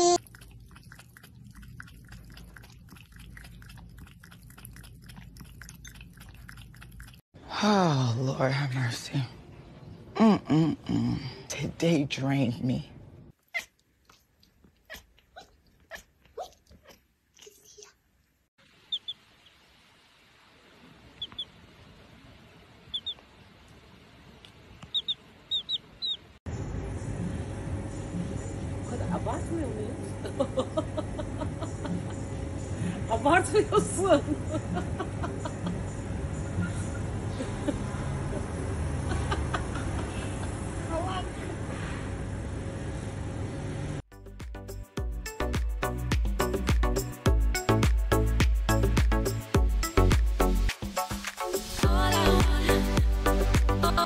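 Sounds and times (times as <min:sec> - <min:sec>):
low steady hum: 0:00.0 - 0:44.0
cat lapping water: 0:00.2 - 0:07.2
baby chick peeping: 0:18.9 - 0:19.2, 0:21.1 - 0:21.5, 0:22.9 - 0:23.2, 0:24.8 - 0:26.3.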